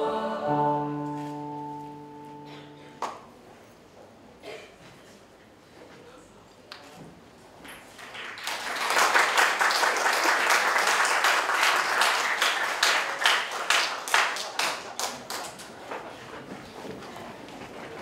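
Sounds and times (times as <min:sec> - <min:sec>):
audience applauding: 0:08.0 - 0:16.0.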